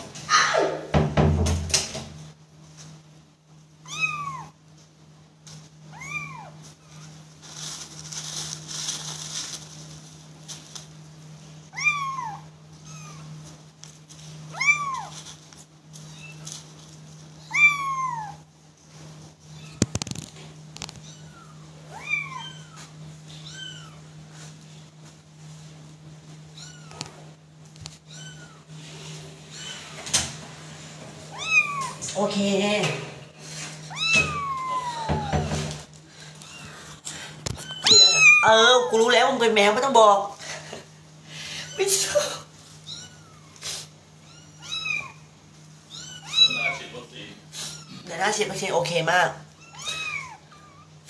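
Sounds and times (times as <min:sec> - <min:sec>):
kittens mewing: 0:11.7 - 0:13.4, 0:17.4 - 0:18.5, 0:33.8 - 0:35.6, 0:37.6 - 0:38.6, 0:41.6 - 0:48.1, 0:49.6 - 0:51.0.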